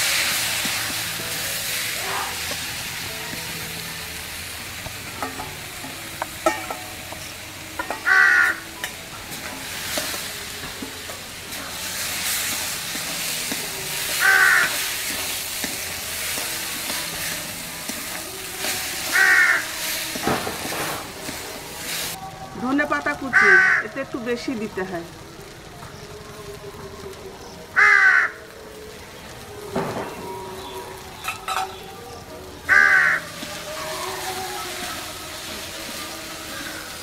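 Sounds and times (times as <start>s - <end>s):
light sizzle: 0.0s - 37.0s
crow cawing: 8.0s - 8.6s, 14.2s - 14.7s, 19.1s - 19.7s, 23.3s - 23.8s, 27.8s - 28.4s, 32.7s - 33.2s.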